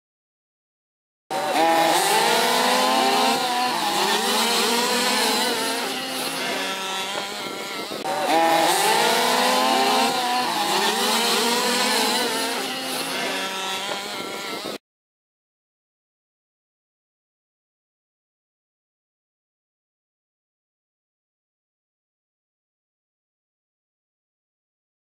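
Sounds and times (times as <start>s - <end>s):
small two-stroke engines racing: 1.3s - 14.8s.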